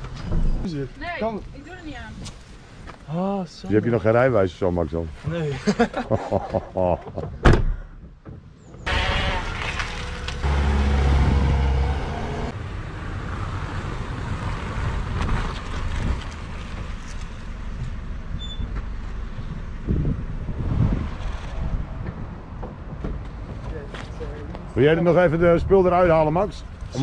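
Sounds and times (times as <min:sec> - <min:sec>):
car door thudding shut: 0:07.4 - 0:07.8
car engine starting and driving off: 0:08.9 - 0:12.6
wind noise on microphone: 0:18.4 - 0:23.2.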